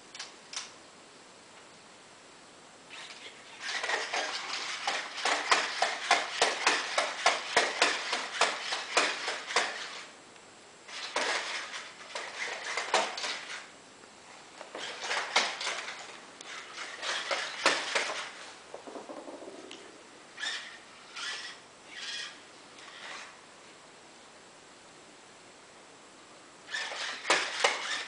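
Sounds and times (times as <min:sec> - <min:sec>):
robot servos whirring: 0:02.9 - 0:10.1, 0:14.8 - 0:18.4, 0:20.4 - 0:23.4, 0:26.7 - 0:28.0
plastic feet clicking on floor: 0:03.7 - 0:10.0, 0:14.6 - 0:19.3.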